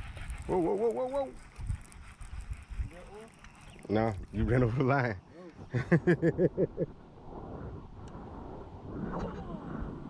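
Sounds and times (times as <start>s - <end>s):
man laughing: 5.7s - 6.9s.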